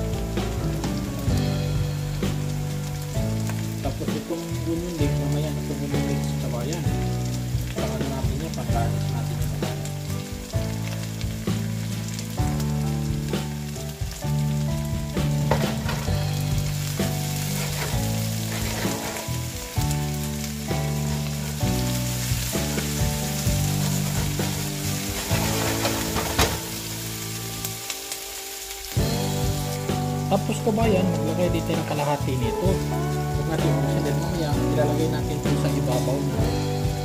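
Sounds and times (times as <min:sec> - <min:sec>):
background music with low notes: 0:00.0 - 0:37.0
vegetables sizzling in a frying pan: 0:00.0 - 0:37.0
spatula scraping a pan: 0:15.4 - 0:27.2.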